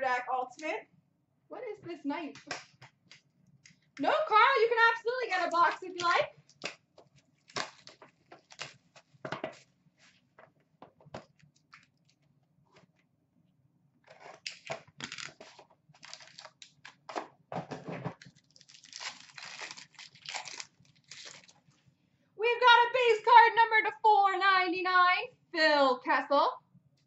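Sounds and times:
plastic wrapping crinkling: 5.3s - 9.7s, 14.1s - 17.1s, 18.1s - 21.7s
plastic wrapping tearing: 7.4s - 9.1s, 14.1s - 17.1s, 18.2s - 21.6s.

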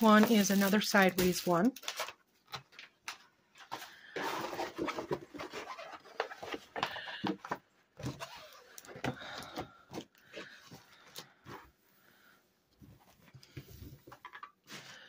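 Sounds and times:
plastic film crinkling: 0.0s - 3.3s.

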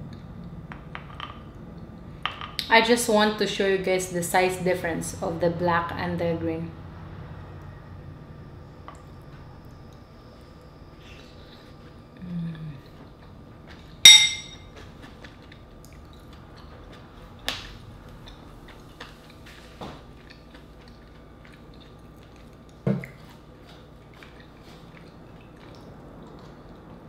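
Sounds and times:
mussel shell clinking on a dish: 14.1s - 14.7s.

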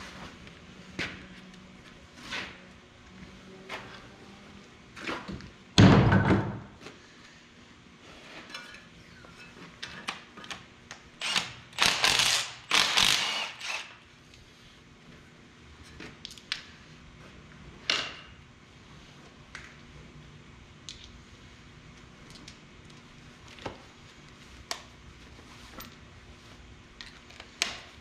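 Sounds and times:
cordless power tool bursts: 11.2s - 14.0s.

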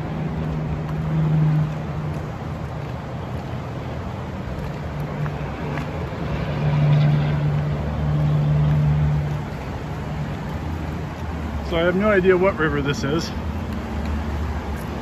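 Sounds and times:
highway traffic drone: 0.0s - 15.0s.

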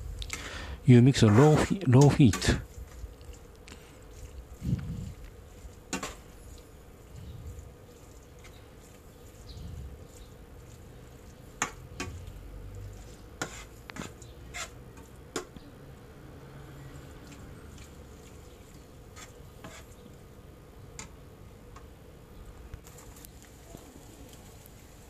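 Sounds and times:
faint steady hum: 0.0s - 25.0s
spoon scraping frying pan: 1.1s - 15.5s, 17.2s - 20.1s.

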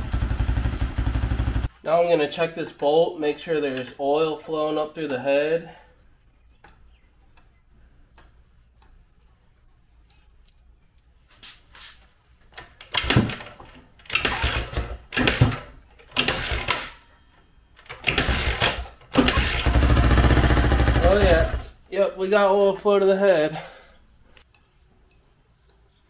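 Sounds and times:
dirt bike engine firing: 0.0s - 1.7s, 12.9s - 17.0s, 17.8s - 21.8s.

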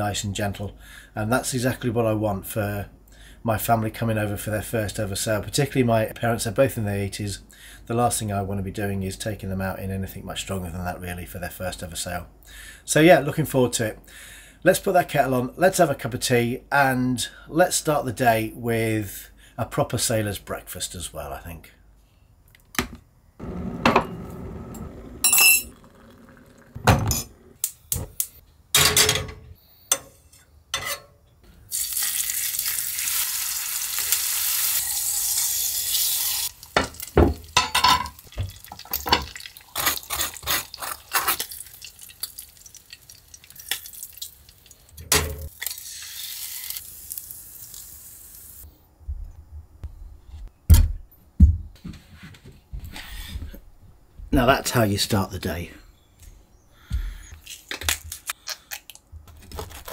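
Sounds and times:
bacon sizzling in a pan: 31.7s - 37.6s, 38.2s - 44.9s, 45.5s - 48.6s.

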